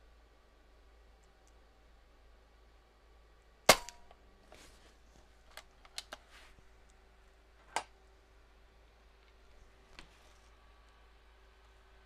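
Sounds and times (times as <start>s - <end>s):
air rifle shot: 3.7s - 4.1s.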